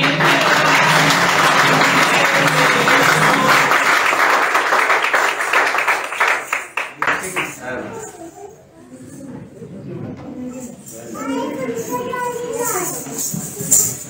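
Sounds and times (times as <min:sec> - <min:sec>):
dance music: 0:00.0 - 0:04.0
audience applauding: 0:00.0 - 0:07.8.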